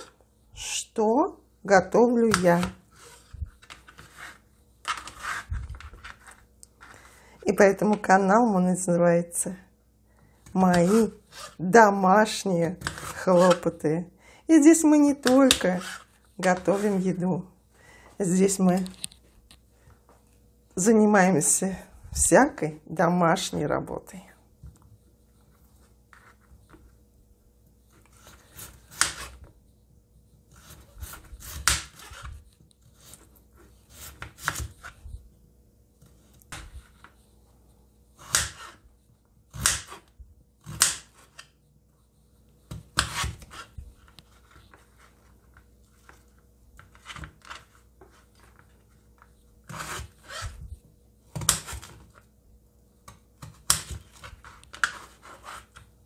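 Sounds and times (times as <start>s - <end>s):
knife slicing potatoes on board: 28.1s - 29.4s, 30.5s - 33.2s, 33.9s - 35.0s, 38.2s - 38.8s, 42.6s - 43.8s, 49.6s - 50.4s.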